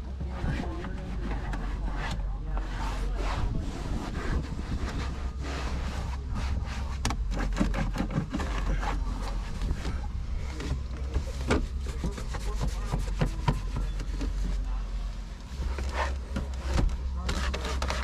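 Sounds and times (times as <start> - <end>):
cloth wiping plastic dashboard: 0.0 - 18.0
short scrapes and clicks: 15.8 - 18.0.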